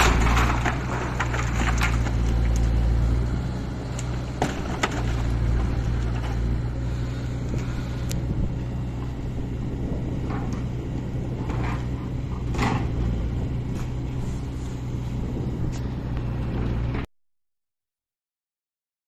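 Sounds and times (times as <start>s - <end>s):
wood cracking and crunching: 0.0s - 8.2s
excavator diesel engine running: 0.0s - 17.1s.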